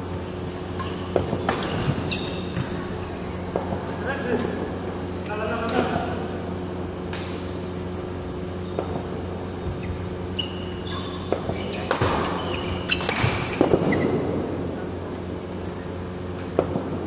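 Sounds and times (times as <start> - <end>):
steady hum: 0.0 - 17.0
sneakers squeaking on court: 0.4 - 3.9, 8.6 - 14.6.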